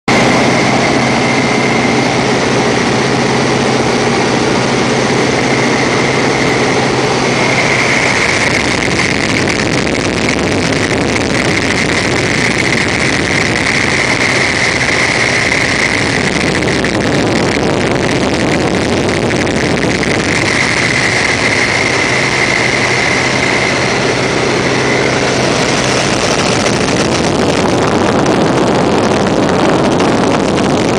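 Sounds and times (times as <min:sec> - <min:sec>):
propeller plane engine droning: 0:00.1 - 0:30.9
wind rushing over microphone: 0:00.1 - 0:30.9.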